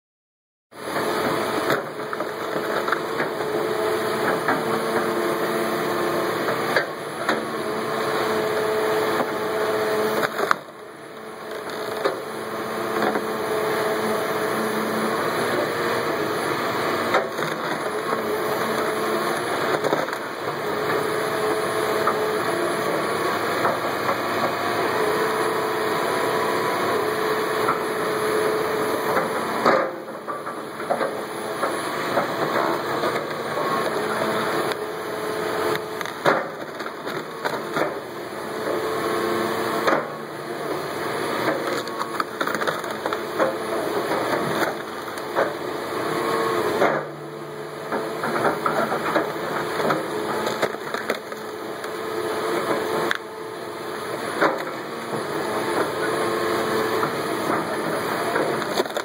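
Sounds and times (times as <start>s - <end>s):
diesel engine running: 0.8s - 59.0s
wood cracking: 35.7s - 38.0s, 41.4s - 45.6s, 48.8s - 52.0s, 58.4s - 59.0s.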